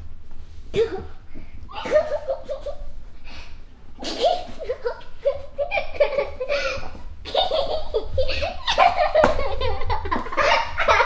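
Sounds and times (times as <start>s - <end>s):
girl laughing and giggling: 1.7s - 3.0s, 4.0s - 11.0s.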